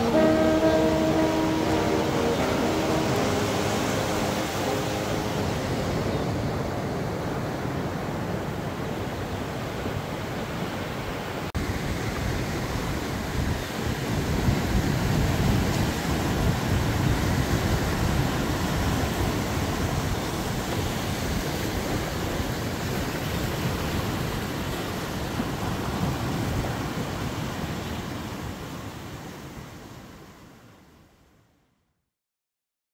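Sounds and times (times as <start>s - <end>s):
ocean surf washing on beach: 0.0s - 31.1s
wind rumbling on microphone: 11.6s - 30.1s.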